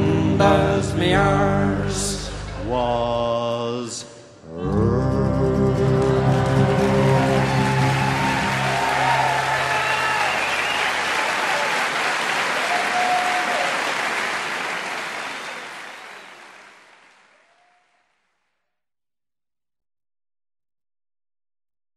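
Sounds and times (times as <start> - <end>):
band chord: 4.6 - 10.3
audience applauding: 5.9 - 17.9
cheers: 6.1 - 18.0.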